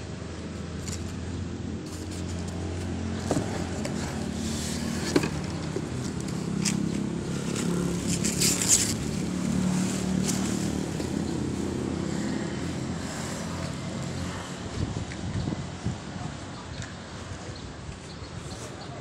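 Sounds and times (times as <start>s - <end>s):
plastic and cardboard rustling: 1.8s - 11.2s.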